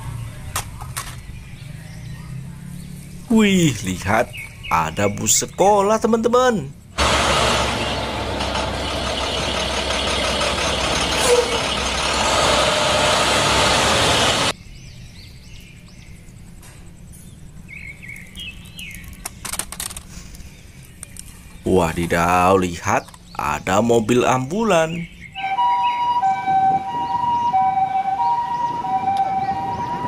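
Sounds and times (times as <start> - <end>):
birds chirping: 0.0 - 30.0
road noise: 0.0 - 30.0
bus engine running: 6.8 - 14.6.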